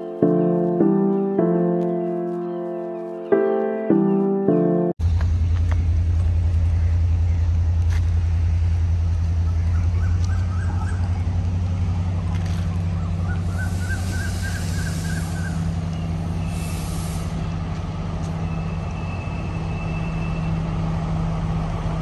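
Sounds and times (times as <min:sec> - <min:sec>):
train engine low drone: 0:04.6 - 0:22.0.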